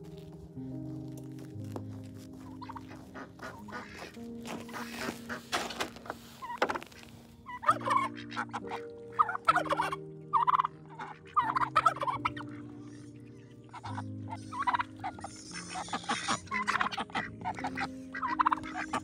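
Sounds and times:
boots crunching on snow: 0:00.0 - 0:08.0
turkeys gobbling: 0:02.4 - 0:19.0.

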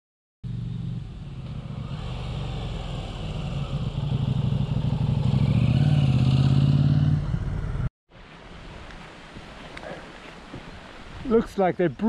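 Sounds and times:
motorcycle engine running: 0:00.4 - 0:07.9.

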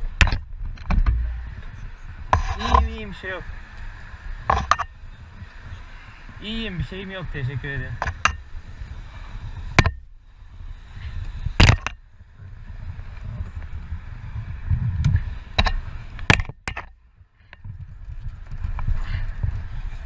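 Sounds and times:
wind rumbling on microphone: 0:00.0 - 0:20.0
sharp knocks and impacts: 0:09.8 - 0:10.1, 0:11.6 - 0:12.0.

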